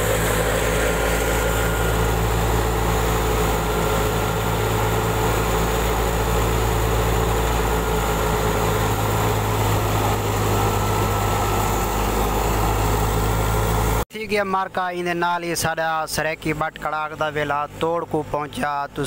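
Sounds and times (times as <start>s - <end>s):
thresher mechanical drone: 0.0s - 14.0s.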